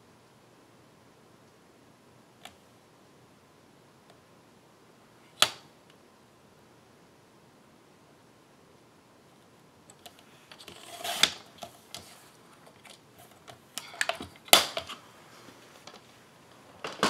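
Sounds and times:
paper trimmer blade scraping: 0:10.6 - 0:11.4.

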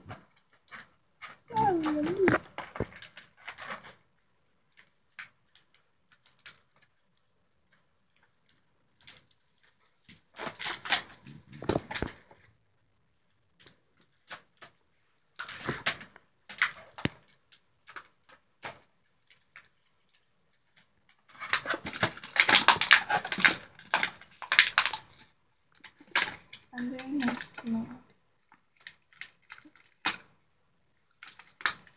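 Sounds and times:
plastic packaging crinkling: 0:15.4 - 0:30.3.

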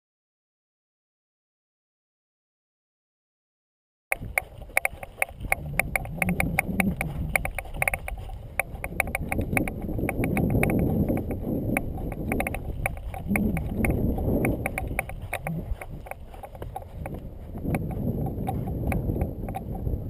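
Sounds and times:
mountain bike rattling over rocks: 0:04.1 - 0:20.0
rumble of tyres and air: 0:04.1 - 0:20.0.

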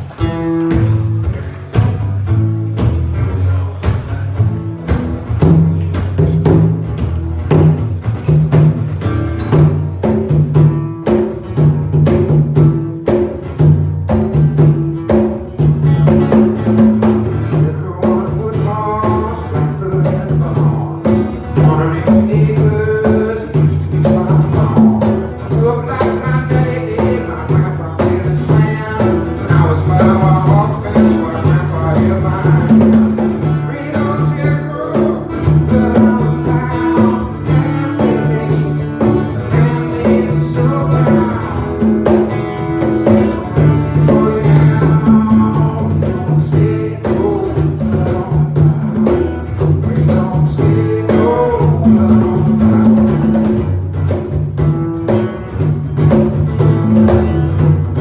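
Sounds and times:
acoustic guitars strummed: 0:00.0 - 0:58.0
congas played by hand: 0:00.0 - 0:58.0
man singing into a microphone: 0:17.5 - 0:42.0, 0:42.8 - 0:53.4.

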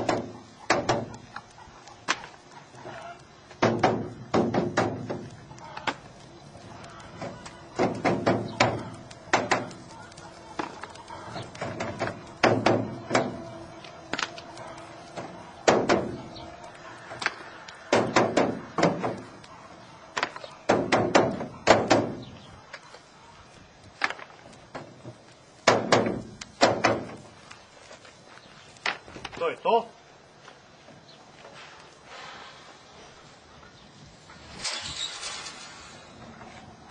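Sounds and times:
wooden frames knocking on metal: 0:03.6 - 0:05.3, 0:07.8 - 0:09.7, 0:11.6 - 0:13.4, 0:15.2 - 0:16.2.

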